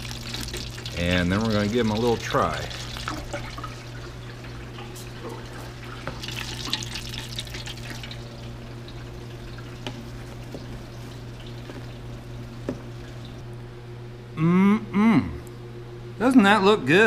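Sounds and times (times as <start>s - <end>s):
frying oil sizzling: 0.0s - 13.4s
low electrical hum: 0.0s - 17.0s.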